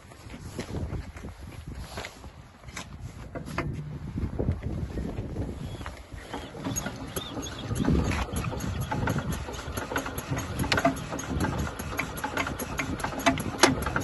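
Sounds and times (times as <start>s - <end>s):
diesel engine idling: 6.2s - 14.0s.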